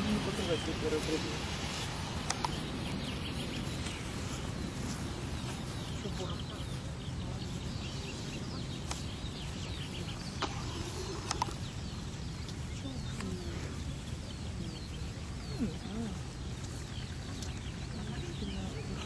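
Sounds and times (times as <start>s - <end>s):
small birds chirping: 0.0s - 19.0s
steady low rumble: 0.0s - 19.0s
faint clicks: 2.2s - 2.6s, 10.4s - 11.7s.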